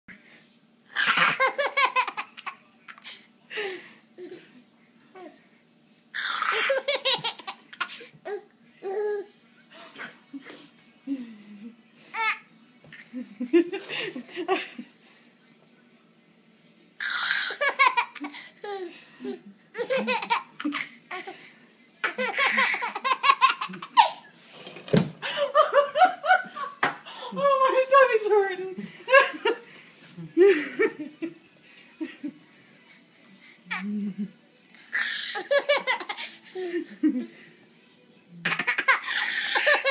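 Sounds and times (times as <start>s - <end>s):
baby laughing: 1.0s - 2.6s, 6.2s - 9.2s, 17.0s - 21.4s, 22.0s - 24.3s, 34.9s - 36.9s, 38.5s - 39.9s.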